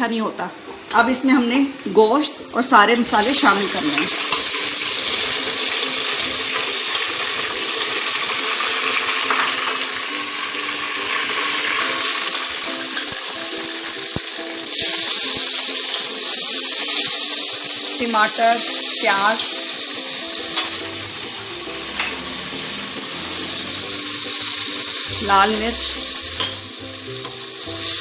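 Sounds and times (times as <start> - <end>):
onions sizzling in hot oil: 0.0 - 28.0.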